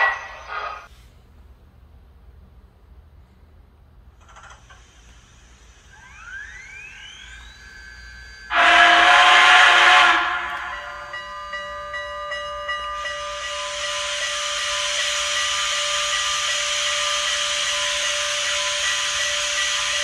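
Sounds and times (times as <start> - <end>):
steam hiss: 0.0 - 1.2, 4.4 - 20.0
steam whistle blast: 5.9 - 20.0.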